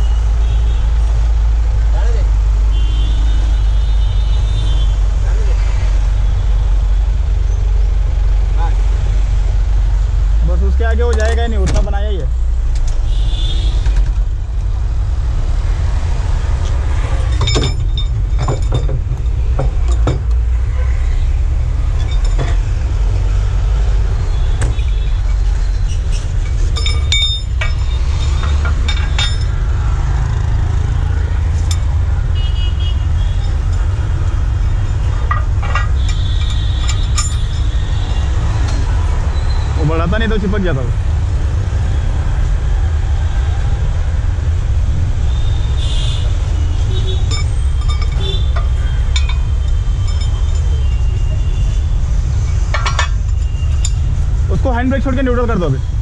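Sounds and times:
metal clinks and clicks: 17.2s - 20.4s, 21.8s - 22.8s, 24.8s - 30.4s, 31.5s - 32.0s, 33.0s - 38.0s, 47.0s - 54.2s.

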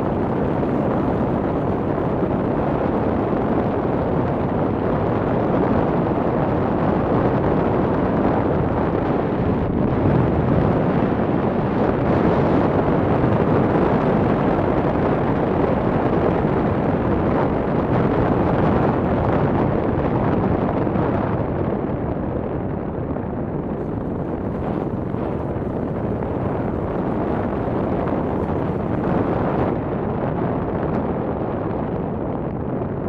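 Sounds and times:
wind roaring over microphone: 0.0s - 33.0s
road noise: 23.6s - 30.0s.

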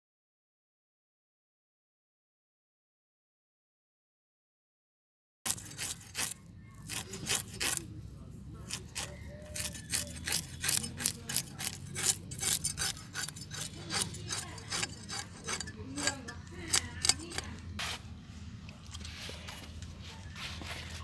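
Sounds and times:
fish scales rasping against blade: 5.5s - 7.9s, 8.6s - 18.0s.

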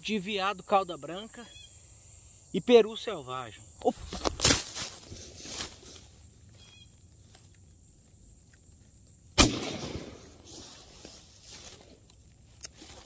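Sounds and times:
shotgun shot: 9.4s - 10.4s.

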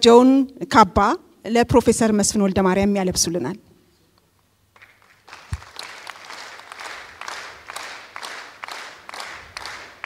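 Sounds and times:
audience clapping rhythmically: 4.7s - 10.0s.

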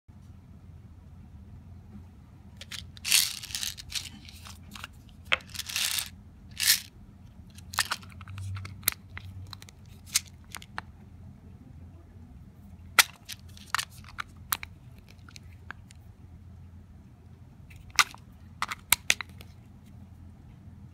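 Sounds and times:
plastic cap scraping: 2.6s - 6.9s.

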